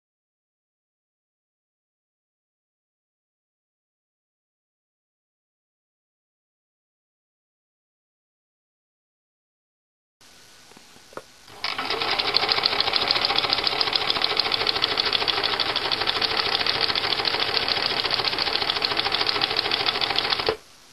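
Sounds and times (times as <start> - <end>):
sewing machine stitching: 11.5 - 20.6.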